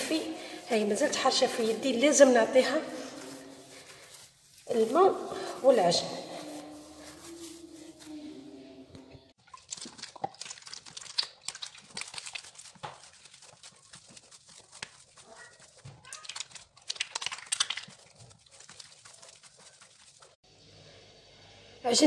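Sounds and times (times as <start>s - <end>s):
hands kneading wet dough: 0.0s - 20.4s
sticky dough slaps and squelches: 9.7s - 15.2s, 15.8s - 18.4s.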